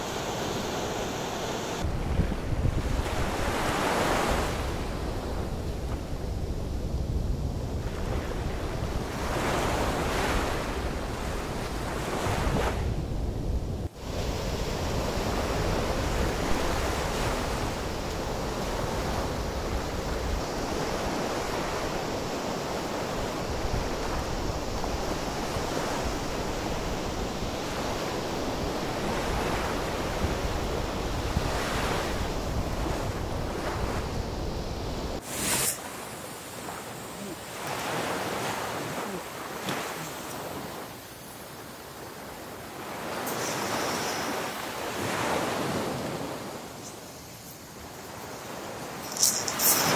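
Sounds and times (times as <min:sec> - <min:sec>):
small waves breaking on shore: 0:00.0 - 0:13.1, 0:13.8 - 0:49.9
wind buffeting microphone: 0:01.8 - 0:35.4.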